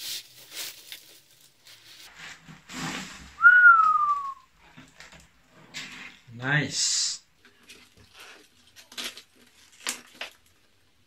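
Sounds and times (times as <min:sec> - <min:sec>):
bubble wrap crinkling: 0:00.0 - 0:05.1, 0:07.4 - 0:11.0
whistle falling in pitch: 0:03.4 - 0:04.4.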